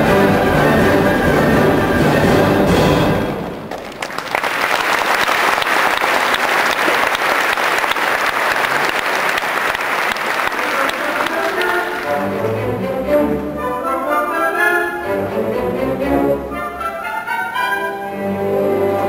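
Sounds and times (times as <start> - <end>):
orchestra playing: 0.0 - 4.0, 10.3 - 19.0
audience applauding: 3.7 - 12.3.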